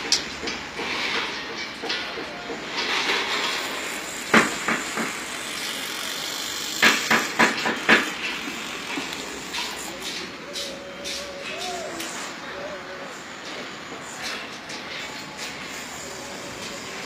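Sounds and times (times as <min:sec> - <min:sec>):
background rush of site noise: 0:00.0 - 0:17.0.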